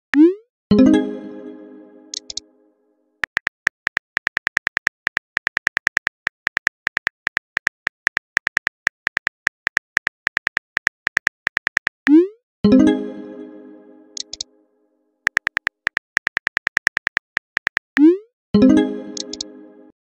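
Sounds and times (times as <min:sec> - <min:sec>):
phone keyboard typing clicks: 0:02.1 - 0:02.4, 0:03.2 - 0:12.0, 0:14.2 - 0:14.5, 0:15.3 - 0:18.1, 0:19.2 - 0:19.5.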